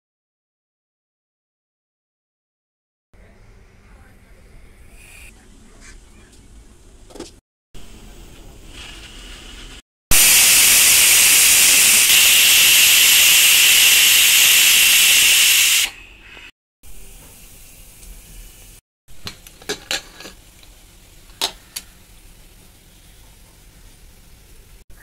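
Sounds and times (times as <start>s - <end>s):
pressure cooker whistle hiss: 10.1s - 16.4s.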